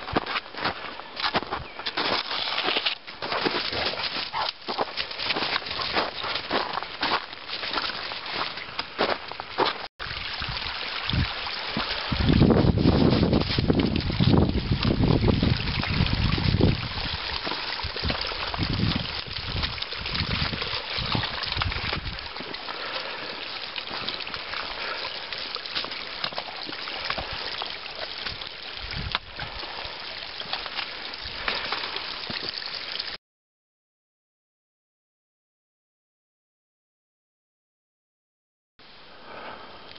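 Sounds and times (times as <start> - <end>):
meltwater trickling over rocks: 1.9 - 33.2
wind rumble on microphone: 10.0 - 22.3, 28.3 - 29.7.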